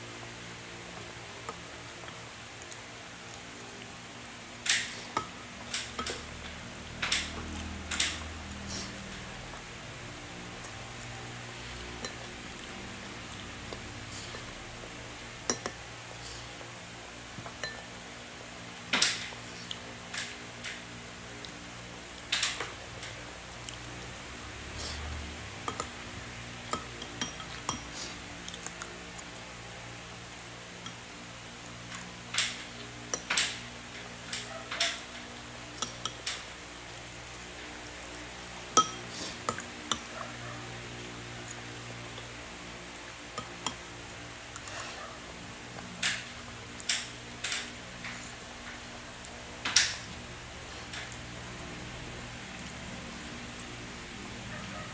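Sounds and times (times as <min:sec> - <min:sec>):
low room hum: 0:00.0 - 0:54.9
spoon tapping and scraping in bowl: 0:15.5 - 0:15.8, 0:26.8 - 0:27.9, 0:38.8 - 0:40.1.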